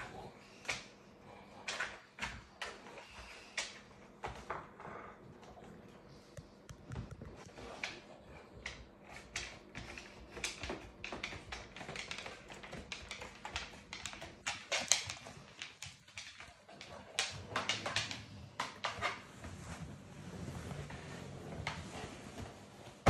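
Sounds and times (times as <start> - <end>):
dog claws clicking on wood floor: 6.4 - 19.2.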